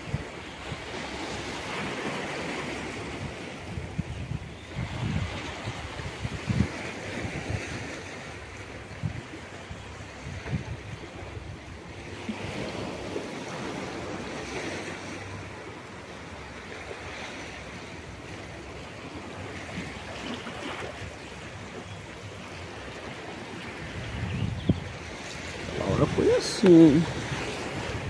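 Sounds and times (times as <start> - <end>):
sea surf breaking: 0.0 - 3.9, 10.2 - 28.0
wind on microphone: 3.0 - 14.6, 23.6 - 28.0.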